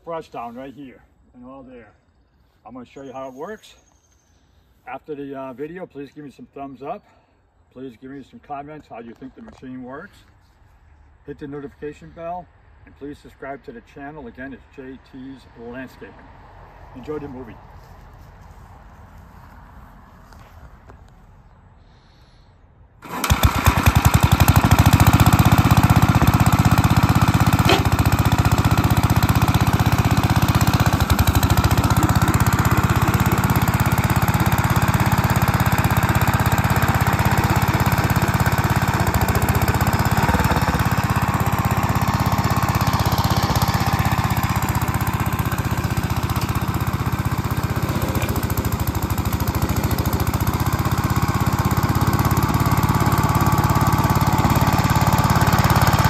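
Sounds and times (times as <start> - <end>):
rotary blades cutting brush: 23.0 - 56.0
tractor engine droning: 23.0 - 56.0.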